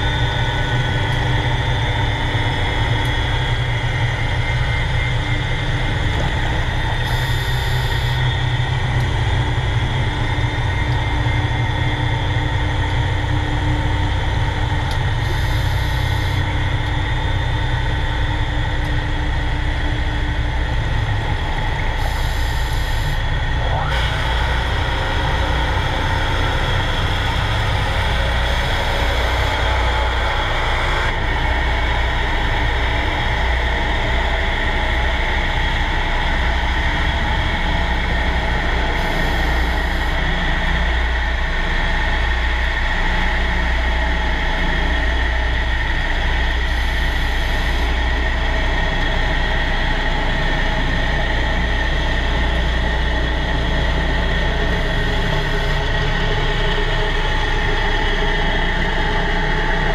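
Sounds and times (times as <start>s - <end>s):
high whine: 0.0s - 59.9s
underwater mechanical drone: 0.0s - 59.9s.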